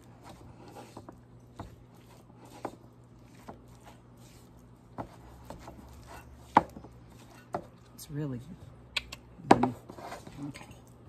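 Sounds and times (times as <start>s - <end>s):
fork stirring cheese: 0.0s - 8.0s.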